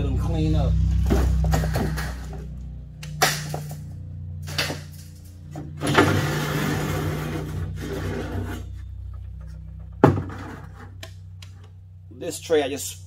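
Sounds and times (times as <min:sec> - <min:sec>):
metal trays clanking: 0:01.0 - 0:02.5
metal tray sliding scrape: 0:05.8 - 0:08.8.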